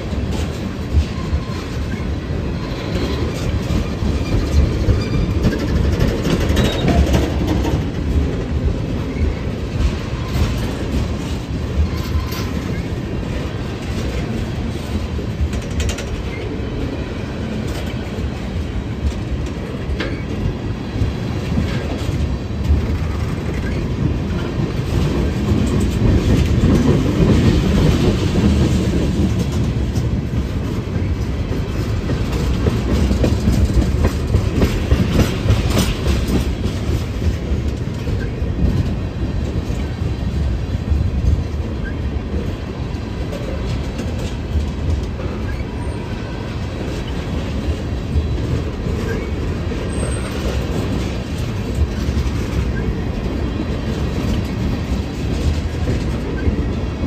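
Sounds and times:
train passing: 0.0s - 57.0s
wheels clicking over rail joints: 2.9s - 16.6s, 17.5s - 42.4s.

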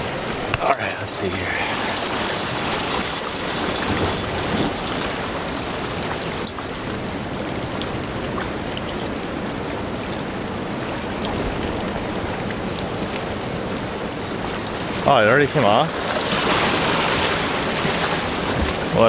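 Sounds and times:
light rapid ticking: 0.6s - 9.6s, 10.5s - 11.9s.

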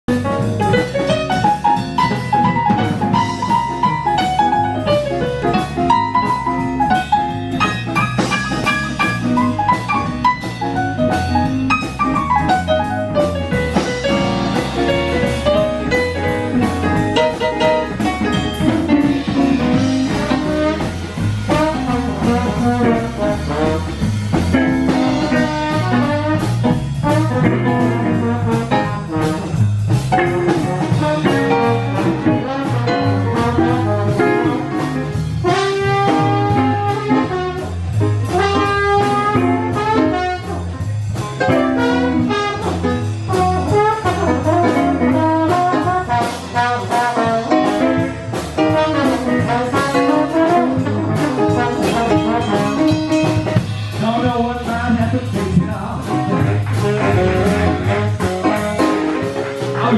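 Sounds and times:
drum kit: 0.0s - 59.9s
electric guitar: 0.1s - 21.6s
electric keyboard: 0.1s - 54.0s
horn line melody: 0.1s - 59.9s
saxophone: 30.5s - 53.4s, 56.4s - 59.9s.

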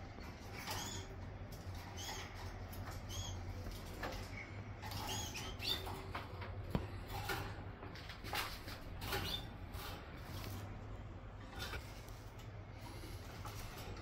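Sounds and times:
canaries chirping: 0.0s - 10.7s
steady low hum: 0.0s - 14.0s.

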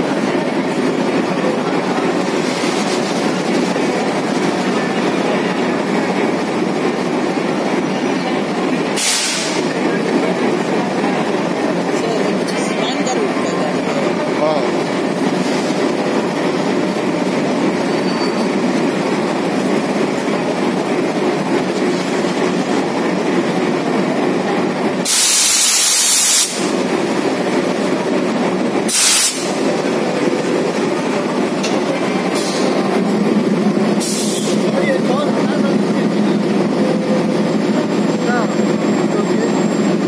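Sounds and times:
diesel locomotive engine running: 0.0s - 40.0s
compressed air hissing: 9.0s - 9.7s, 25.0s - 26.8s, 28.9s - 29.7s, 34.0s - 34.6s.

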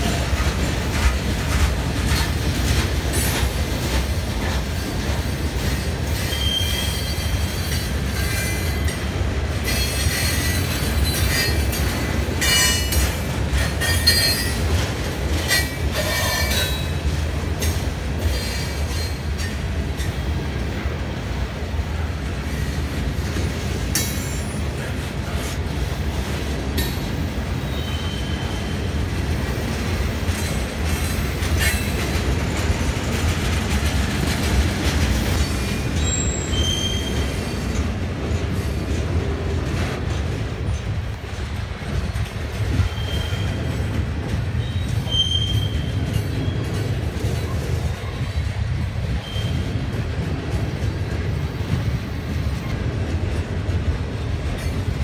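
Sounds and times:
train wheels rumbling on rail: 0.0s - 55.0s
high-pitched wheel squeals: 6.2s - 8.6s, 27.7s - 28.8s, 36.0s - 37.2s, 42.8s - 43.7s, 44.6s - 46.6s.

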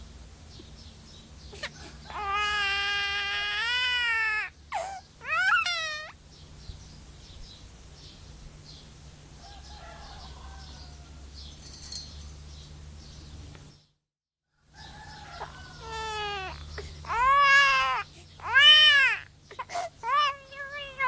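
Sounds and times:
bird imitating baby crying: 1.5s - 6.2s, 15.4s - 21.0s.

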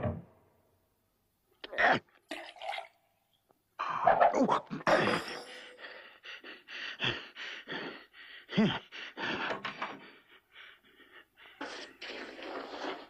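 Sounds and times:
man snickering and panting: 4.8s - 9.6s.

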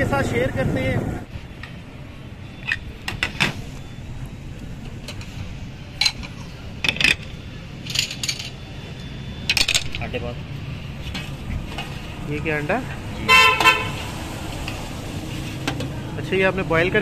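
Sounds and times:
ceramic dishes clinking: 6.0s - 8.6s.

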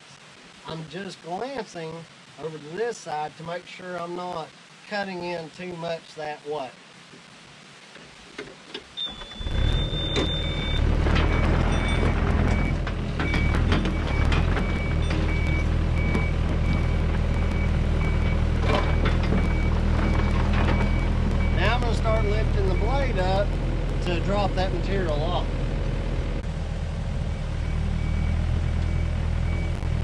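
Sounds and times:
travel alarm beeping: 9.0s - 23.2s
excavator engine and hydraulics: 9.0s - 30.0s.

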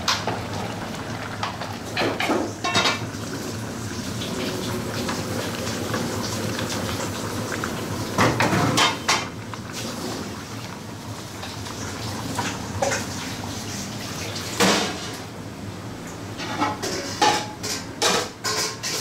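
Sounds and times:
low kitchen hum: 0.0s - 19.0s
metal spoon clanking in stockpots: 16.6s - 19.0s.

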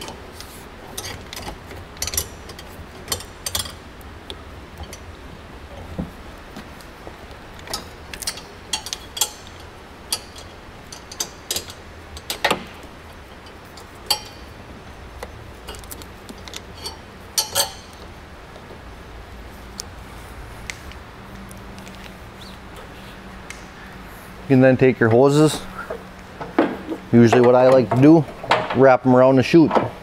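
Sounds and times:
low steady hum: 0.0s - 30.0s
sharp metallic clicks and clinks: 13.4s - 14.5s, 15.7s - 18.0s.

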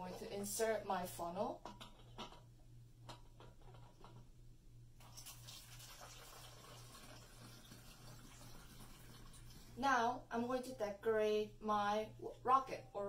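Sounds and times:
liquid trickling through funnel: 5.0s - 9.8s.

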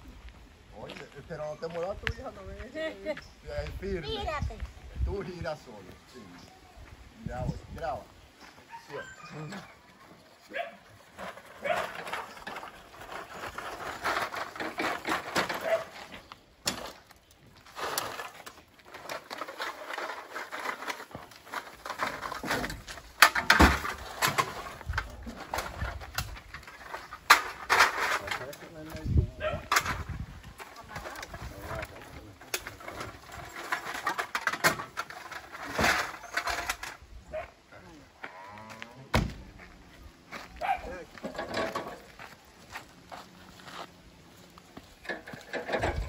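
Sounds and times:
sacks rustling and knocking: 10.6s - 29.0s.

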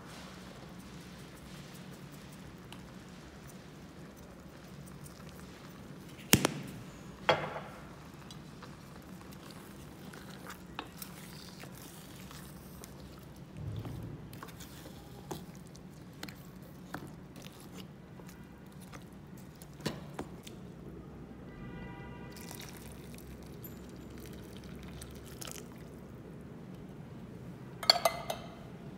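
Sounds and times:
spoon stirring thick curry: 7.9s - 20.4s.

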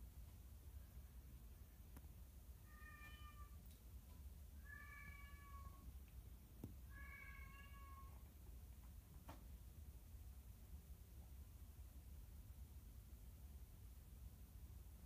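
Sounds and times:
cat meowing: 2.7s - 3.6s, 4.6s - 5.9s, 6.9s - 8.2s.

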